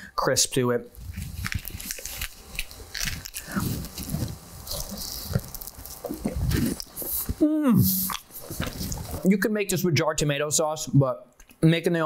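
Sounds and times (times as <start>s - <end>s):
person chewing crunchy crust: 1.0s - 9.3s.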